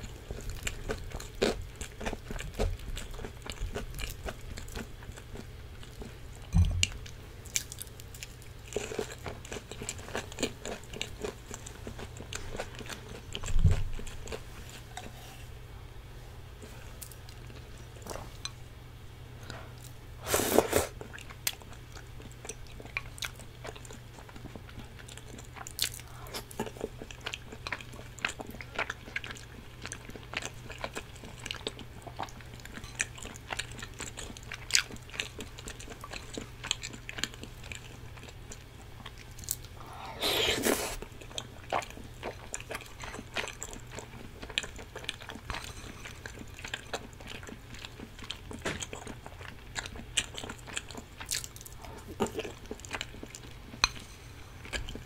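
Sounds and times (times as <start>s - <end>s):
close chewing: 21.0s - 55.0s
loud slurps: 40.1s - 41.0s.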